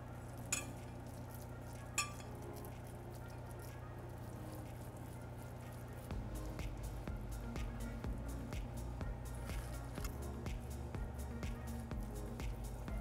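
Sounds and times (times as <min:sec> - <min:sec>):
steady low hum: 0:00.0 - 0:13.0
glass baking dish clinks: 0:00.5 - 0:00.8, 0:02.0 - 0:02.3.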